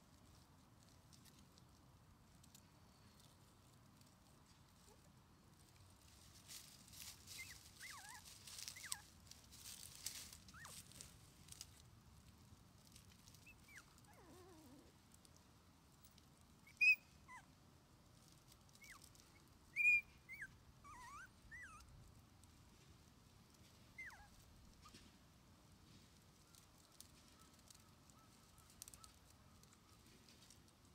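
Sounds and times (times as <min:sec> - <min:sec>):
scuffling and rustling: 0:02.9 - 0:15.3
puppy whimpering: 0:13.4 - 0:14.9, 0:16.7 - 0:17.5, 0:19.8 - 0:21.9, 0:24.0 - 0:24.3
puppy squealing: 0:16.7 - 0:17.0, 0:19.8 - 0:21.8.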